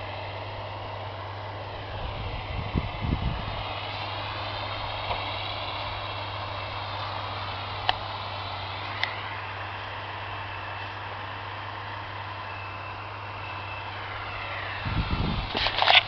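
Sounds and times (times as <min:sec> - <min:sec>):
high whine: 0:00.0 - 0:16.0
tractor engine drone: 0:00.0 - 0:16.0.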